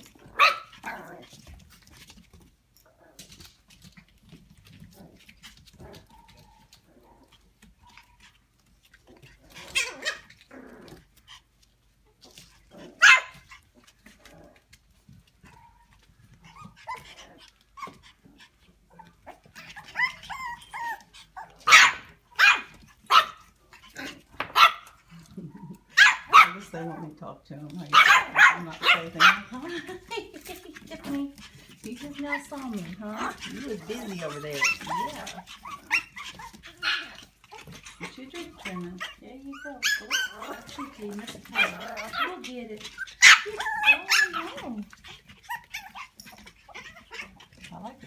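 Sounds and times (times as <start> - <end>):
small dogs barking: 0.0 - 1.4, 9.1 - 11.0, 12.3 - 14.6, 15.4 - 26.9, 27.8 - 48.0.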